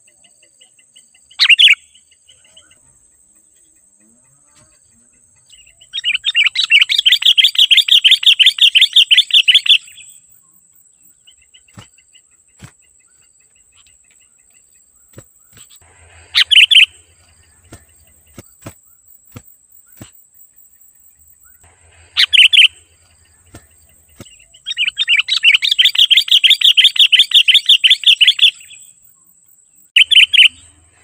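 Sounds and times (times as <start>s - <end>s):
bird chattering: 1.3s - 2.8s, 5.0s - 10.0s, 15.0s - 18.7s, 21.9s - 28.8s, 30.0s - 31.0s.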